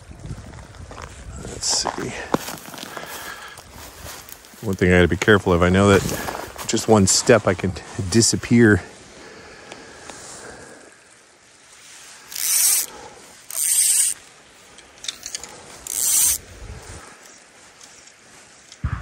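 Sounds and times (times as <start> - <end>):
fly reel ratcheting: 12.3 - 16.4.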